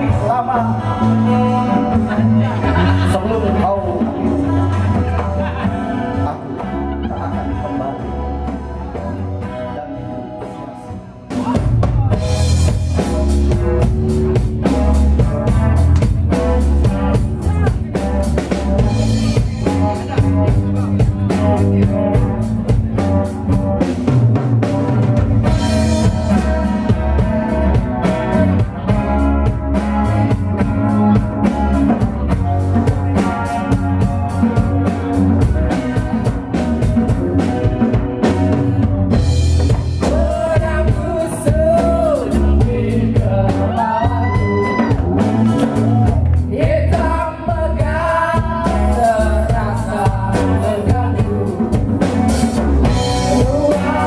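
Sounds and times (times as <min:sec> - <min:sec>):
live band playing: 0:00.0 - 0:54.0
woman singing: 0:40.0 - 0:45.8, 0:46.5 - 0:52.0, 0:53.3 - 0:54.0.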